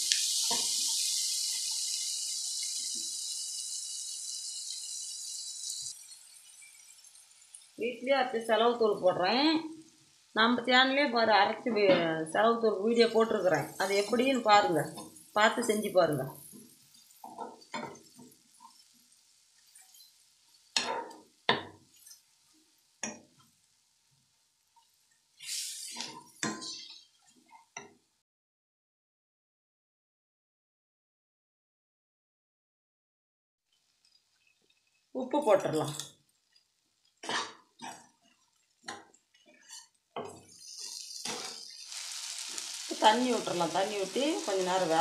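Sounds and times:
frying sizzle: 0.0 - 11.1, 12.2 - 27.9, 33.6 - 45.0
spoon scraping pan: 25.4 - 27.8, 37.2 - 42.8.

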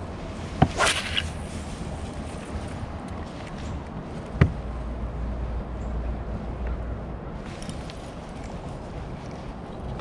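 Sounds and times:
wind and water noise: 0.0 - 10.0
short swishing whoosh: 0.7 - 1.4.

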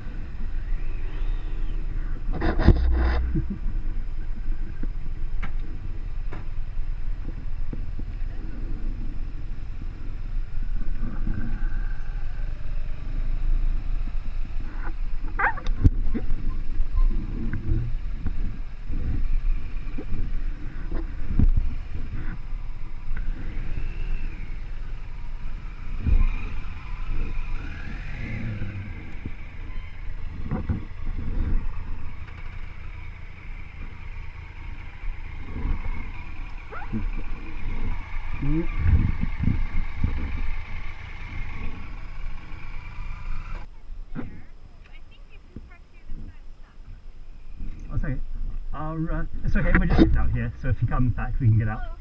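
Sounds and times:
motorcycle engines idling: 0.0 - 52.0
wind buffeting microphone: 15.1 - 32.9, 35.1 - 43.7.

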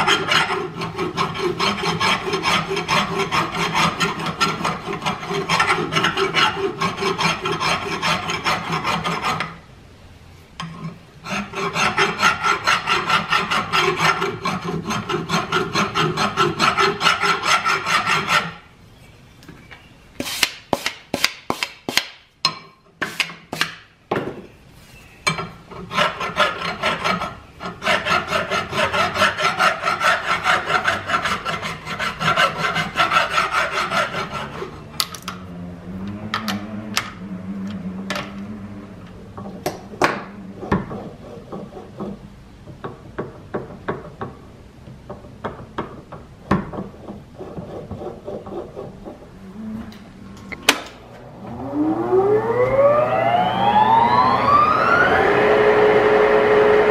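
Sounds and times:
hand file rasping on metal: 0.0 - 9.6, 11.2 - 18.7, 25.3 - 34.9, 40.5 - 42.3, 46.8 - 49.4.

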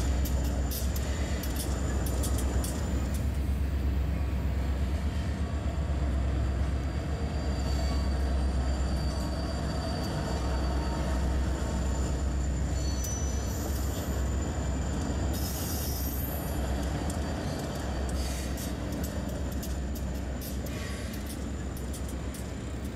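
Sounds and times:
model train rumbling: 0.0 - 7.4.

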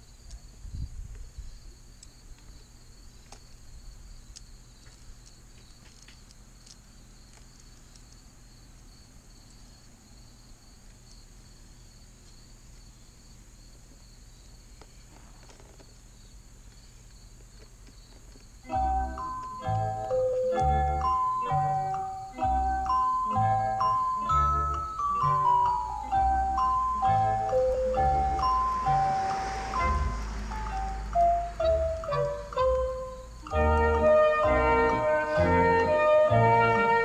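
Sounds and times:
crickets chirring: 0.0 - 36.0.

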